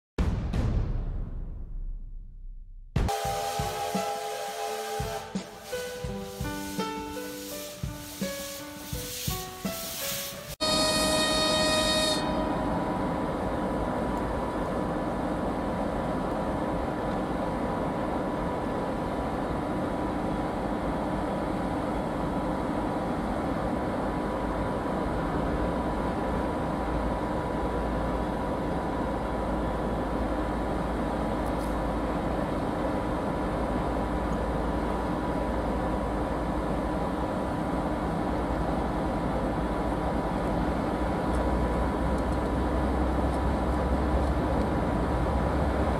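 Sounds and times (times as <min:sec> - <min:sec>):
locomotive diesel engine rumble: 0:10.6 - 0:45.9.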